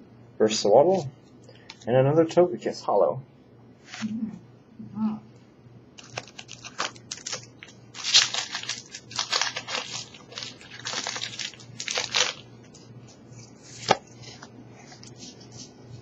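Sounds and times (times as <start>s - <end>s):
foil wrapper crinkling: 6.0s - 13.0s.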